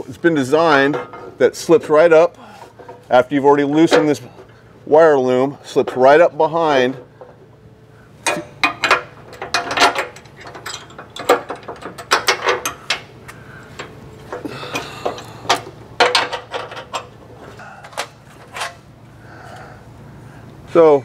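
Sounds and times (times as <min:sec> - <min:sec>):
metal bracket knocking and scraping: 0:08.2 - 0:13.1, 0:15.5 - 0:17.2.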